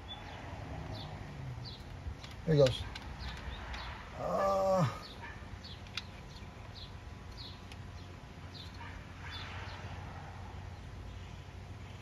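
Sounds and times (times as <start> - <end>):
short whining vocal sound: 4.2 - 5.1.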